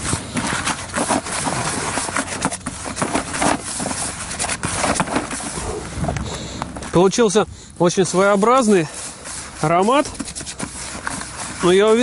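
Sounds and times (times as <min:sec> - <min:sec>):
hands mixing bait in plastic bowl: 0:00.0 - 0:05.6, 0:08.2 - 0:12.0.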